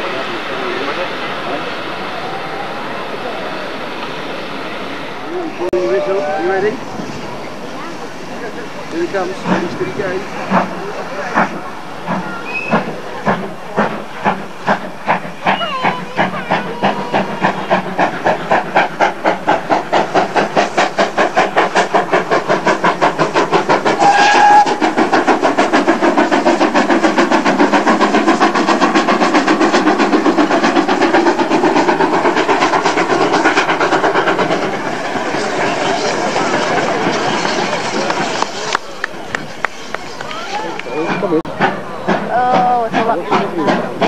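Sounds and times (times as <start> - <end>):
steam locomotive exhaust beats: 0.0 - 44.0
steam whistle blast: 24.0 - 24.8.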